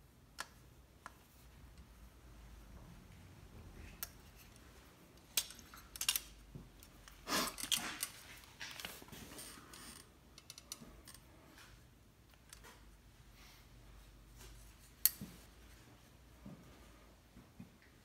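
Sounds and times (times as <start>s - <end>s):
small metallic clicks and clinks: 5.2s - 8.9s.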